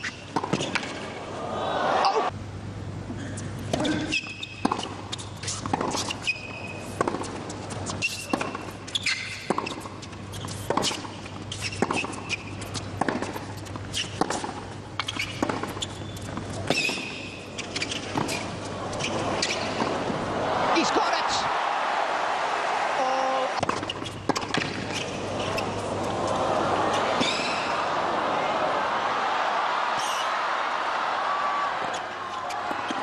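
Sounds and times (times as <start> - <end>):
tennis ball bouncing: 0.3 - 1.1, 3.8 - 20.3, 23.5 - 26.2, 26.9 - 27.8
racket hitting tennis ball: 3.7 - 6.3, 6.9 - 8.8, 10.5 - 21.1, 23.5 - 27.9
shoe squeaks: 3.8 - 6.9, 7.8 - 14.4, 15.0 - 19.9, 23.6 - 25.8.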